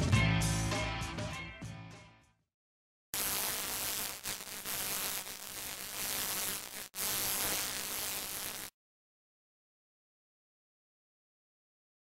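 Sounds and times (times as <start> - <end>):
electric buzzing hiss: 3.2 - 8.7.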